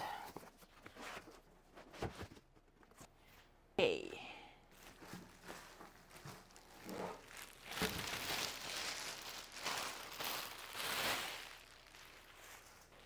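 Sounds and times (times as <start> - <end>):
plastic bag crinkling: 4.8 - 13.0.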